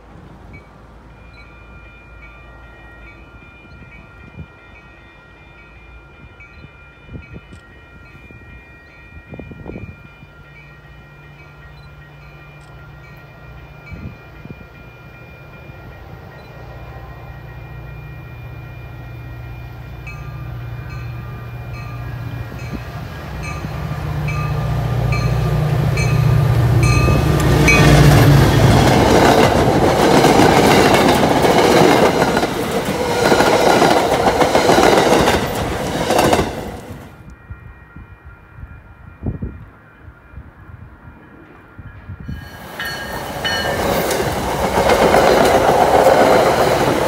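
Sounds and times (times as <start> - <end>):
diesel locomotive drone: 0.0 - 47.0
bell ringing: 23.4 - 29.5, 42.3 - 47.0
train wheels clattering on rails: 23.5 - 37.1, 42.4 - 47.0.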